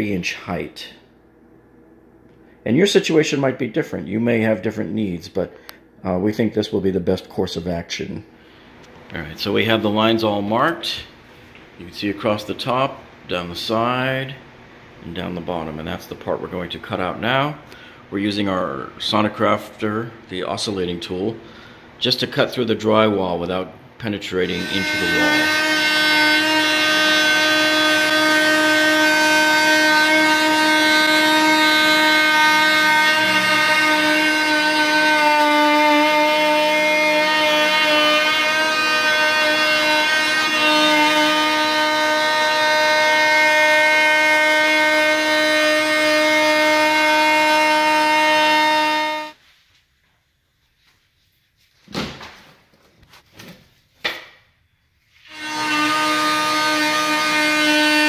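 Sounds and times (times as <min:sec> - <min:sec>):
multi-tool cutting drywall: 0:24.5 - 0:49.2.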